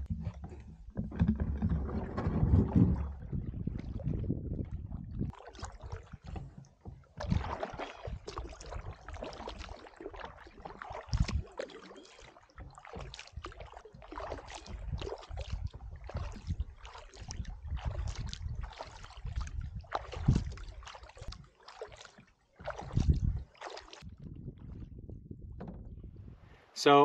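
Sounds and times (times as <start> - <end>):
wind rumble on microphone: 0.0 - 6.6, 11.0 - 11.6, 14.6 - 21.4, 22.6 - 26.7
water splashing and dripping: 0.0 - 24.8
paddle strokes in water: 0.0 - 25.0
sharp splash or knock: 7.2 - 24.0.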